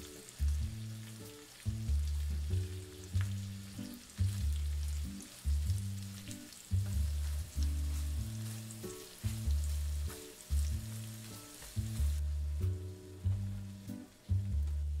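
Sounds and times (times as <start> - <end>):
egg sizzling in a frying pan: 0.0 - 12.2
background music plucked notes: 0.0 - 15.0
spatula stirring in a pan: 5.3 - 12.2.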